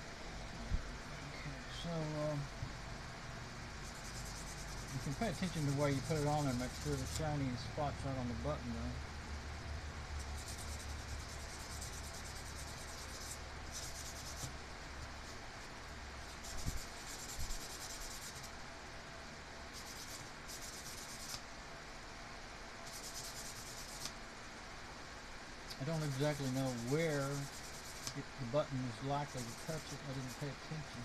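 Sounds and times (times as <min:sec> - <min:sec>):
metal rubbing on sandpaper: 0:03.8 - 0:08.9, 0:10.2 - 0:14.5, 0:16.2 - 0:18.5, 0:19.7 - 0:21.4, 0:22.8 - 0:24.1, 0:25.8 - 0:31.0.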